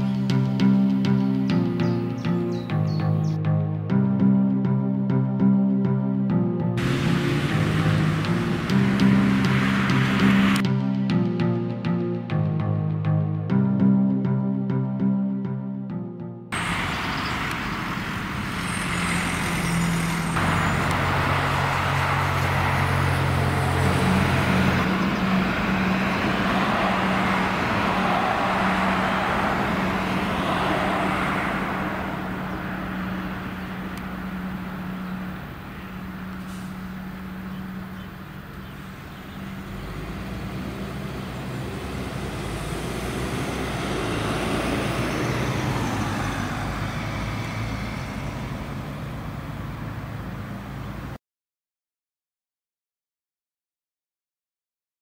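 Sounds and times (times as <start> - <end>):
vehicles passing: 0.0 - 15.3, 16.5 - 51.2
truck engine humming: 6.3 - 12.1, 16.6 - 51.1.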